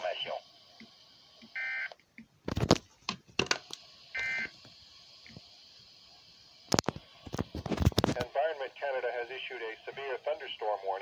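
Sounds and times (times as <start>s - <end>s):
electronic alert beep: 4.2s - 4.5s.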